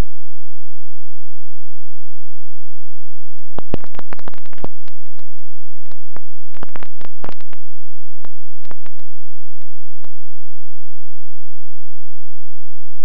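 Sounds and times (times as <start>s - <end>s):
faint steady hum: 0.0s - 13.0s
crackling clicks and pops: 3.3s - 10.5s.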